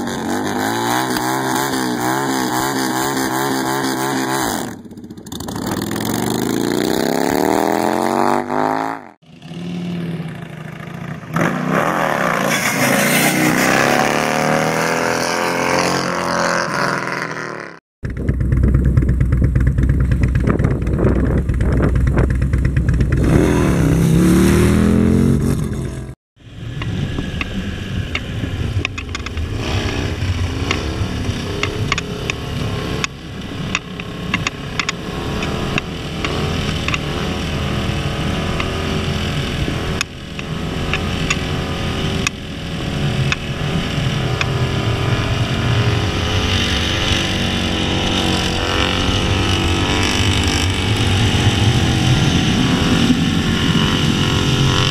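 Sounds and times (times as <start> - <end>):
motorcycle engines revving: 0.0 - 54.9
loud low rumble: 18.0 - 34.3.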